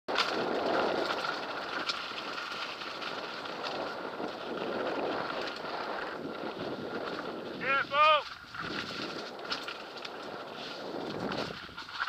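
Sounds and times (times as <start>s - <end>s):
bike rattles and knocks: 0.1s - 12.0s
wind rushing over microphone: 0.2s - 12.0s.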